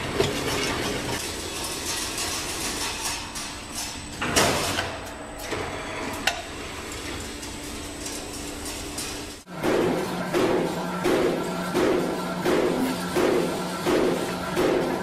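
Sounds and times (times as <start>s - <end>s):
loud machine clank: 8.6s - 15.0s.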